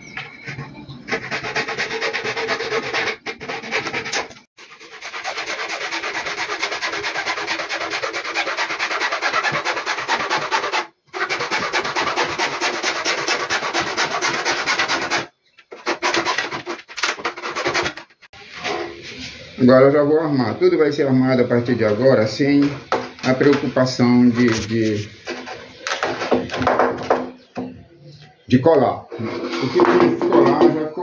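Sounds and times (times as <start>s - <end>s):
hacksaw cutting plastic pipe: 1.1s - 18.3s.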